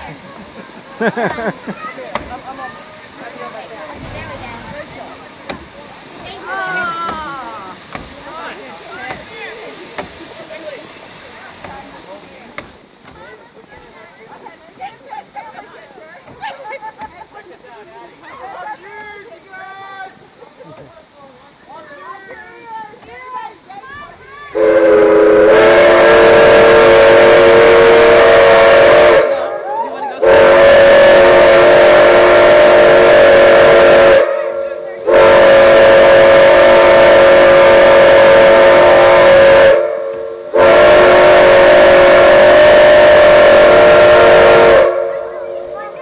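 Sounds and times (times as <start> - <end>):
chime steam whistle blasts: 35.1 - 45.2.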